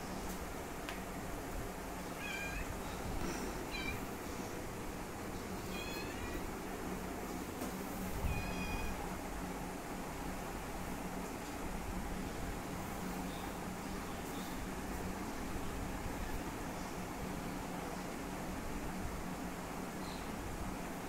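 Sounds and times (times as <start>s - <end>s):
kitten meowing: 2.2s - 2.7s, 3.7s - 4.0s, 5.7s - 6.4s, 8.3s - 9.0s.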